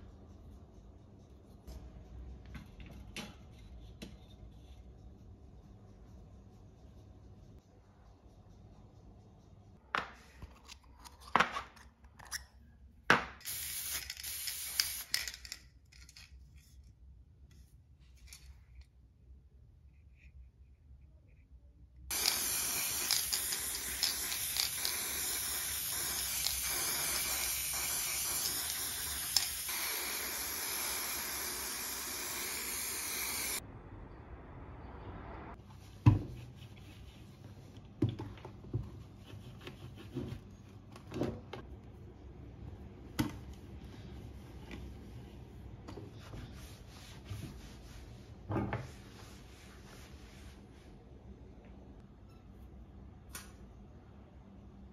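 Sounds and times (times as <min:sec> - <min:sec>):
spray paint can hissing: 0:13.4 - 0:15.4, 0:22.1 - 0:33.6
soft rubbing: 0:43.8 - 0:51.1.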